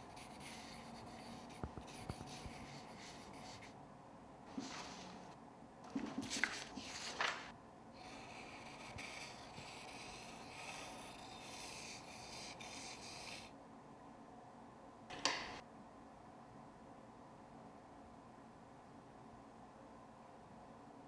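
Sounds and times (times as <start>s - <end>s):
pencil scratching on paper: 0.0s - 3.8s, 8.0s - 13.5s
paper rustling: 4.5s - 5.3s, 5.9s - 7.5s.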